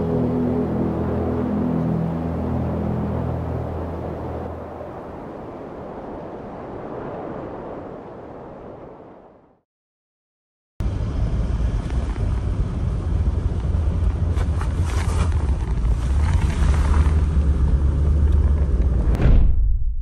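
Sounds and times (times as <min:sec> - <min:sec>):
road rumble: 0:00.0 - 0:06.3, 0:10.8 - 0:19.2.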